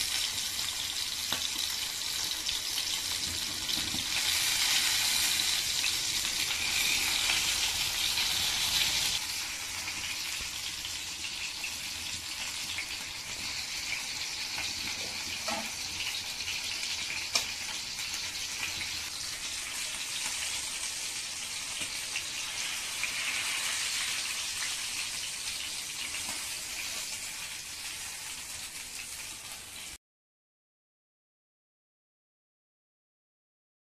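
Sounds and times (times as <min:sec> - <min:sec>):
fish sizzling in hot oil: 0:00.0 - 0:30.0.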